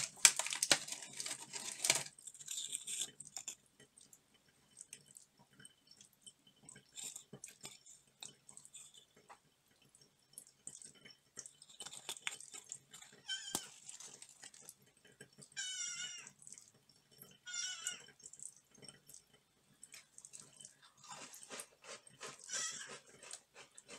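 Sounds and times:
cookie crackling being broken: 0:00.0 - 0:03.6, 0:11.6 - 0:14.7
cat meowing: 0:15.6 - 0:16.3, 0:22.4 - 0:23.0.

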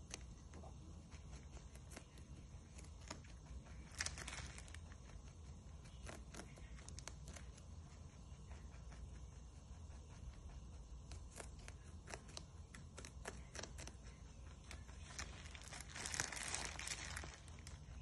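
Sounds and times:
rabbit crunching celery: 0:00.0 - 0:18.0
plastic bag crinkling: 0:03.9 - 0:04.8, 0:15.0 - 0:17.8.

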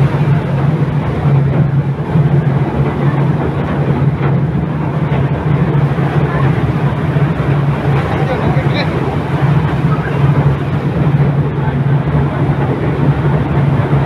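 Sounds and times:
boat engine humming: 0:00.0 - 0:14.0.

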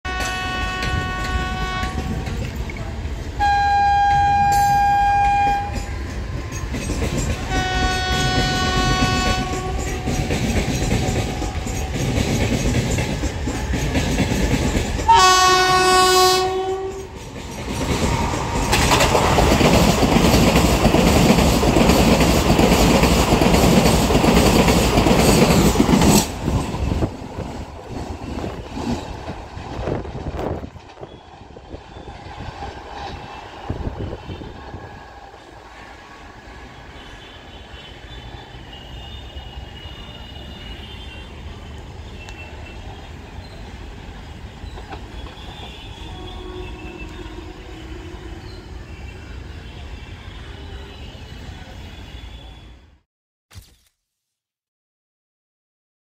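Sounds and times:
train horn blasts: 0:00.0 - 0:02.3, 0:03.4 - 0:06.0, 0:07.4 - 0:10.6, 0:15.1 - 0:17.1, 0:33.1 - 0:35.1, 0:36.7 - 0:41.5, 0:45.1 - 0:52.8
train passing at speed: 0:00.1 - 0:53.0.

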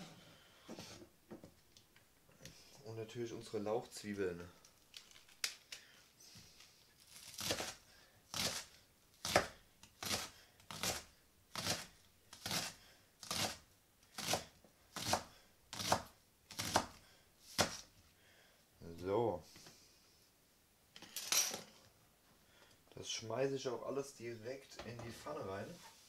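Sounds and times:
knife chopping on plastic board: 0:09.2 - 0:11.0, 0:14.2 - 0:17.9.

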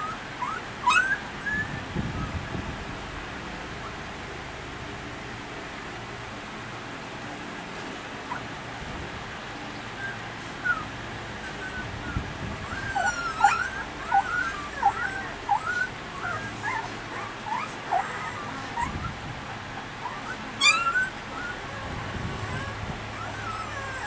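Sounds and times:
puppies squeaking and whimpering: 0:00.0 - 0:02.6, 0:07.4 - 0:08.6, 0:09.4 - 0:24.0.

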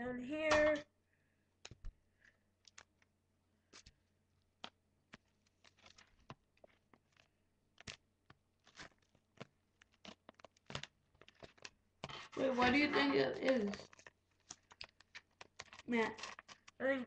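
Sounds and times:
paper being handled: 0:05.1 - 0:08.0, 0:08.6 - 0:16.8.

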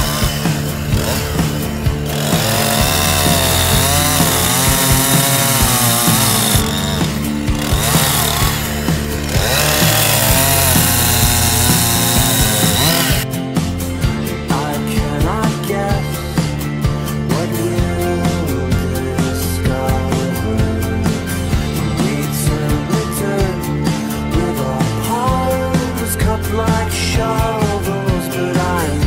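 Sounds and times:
chainsaw cutting horn: 0:00.0 - 0:13.3
song with singing: 0:14.2 - 0:29.0.

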